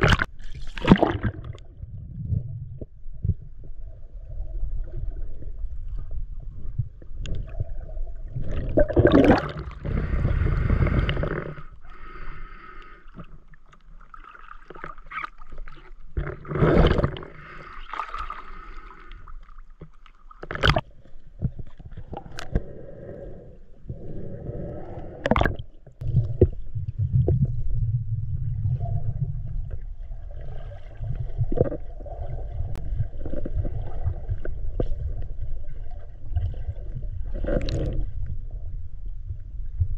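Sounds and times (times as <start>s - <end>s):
water gurgling and sloshing: 0.0s - 39.9s
muffled low rumble: 26.0s - 30.2s.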